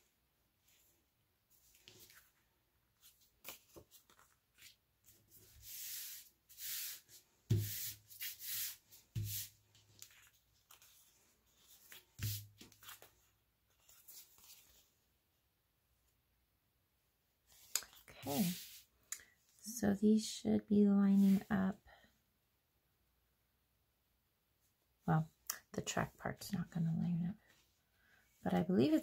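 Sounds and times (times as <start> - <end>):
paper scraping and rustling: 3.0 - 14.8.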